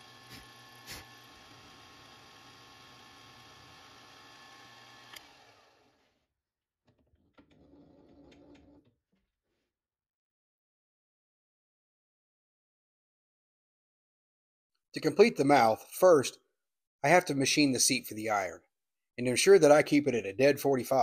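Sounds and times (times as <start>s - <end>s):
milling machine hum and whine: 0.0s - 5.7s.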